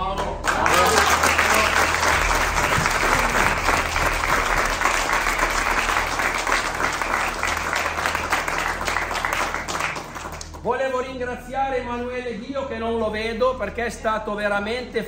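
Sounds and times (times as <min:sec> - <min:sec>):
crowd applauding: 0:00.0 - 0:10.6.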